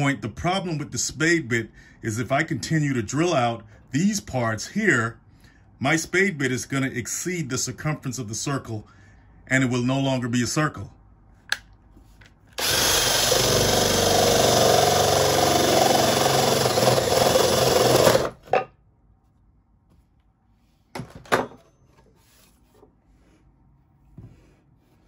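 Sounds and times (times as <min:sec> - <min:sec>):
drill boring into wood: 0:12.6 - 0:18.4.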